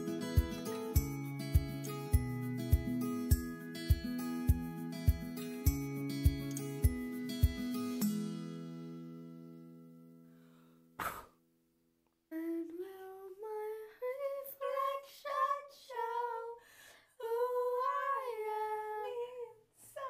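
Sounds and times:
acoustic guitar chord: 0:00.0 - 0:10.8
woman singing unaccompanied: 0:12.3 - 0:16.6, 0:17.2 - 0:20.0.

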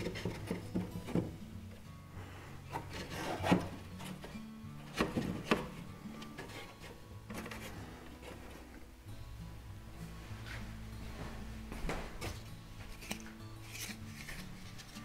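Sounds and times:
wooden strips knocking on frames: 0:00.0 - 0:01.4, 0:04.9 - 0:05.8
wood scraping: 0:00.0 - 0:01.5, 0:02.3 - 0:08.9
background music: 0:00.0 - 0:15.0.

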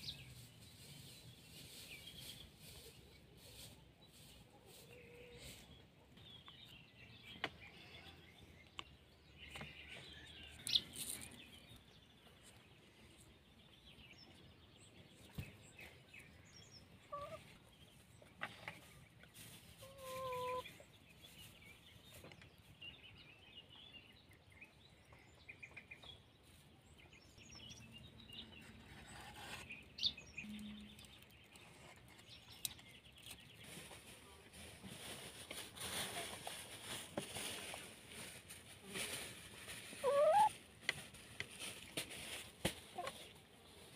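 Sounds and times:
small birds chirping: 0:00.0 - 0:43.9
hen clucking: 0:17.0 - 0:17.6, 0:19.8 - 0:20.8, 0:39.9 - 0:40.6, 0:42.9 - 0:43.3.

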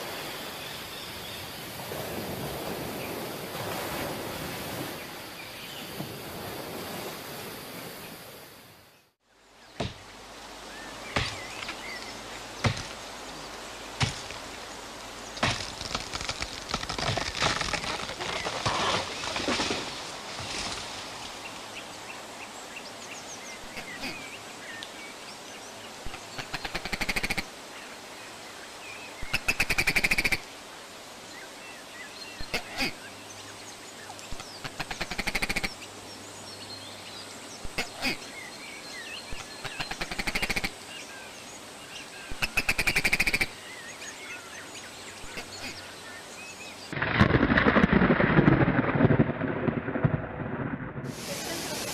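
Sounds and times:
steady background hiss: 0:00.0 - 0:47.4, 0:51.1 - 0:51.9
birds chirping: 0:07.8 - 0:47.0
sharp knocks: 0:09.8 - 0:10.0, 0:12.6 - 0:12.9.

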